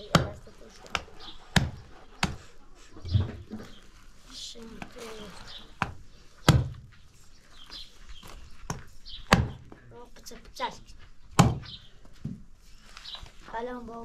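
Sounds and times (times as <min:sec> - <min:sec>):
knife chopping through ribs: 0:00.1 - 0:02.4.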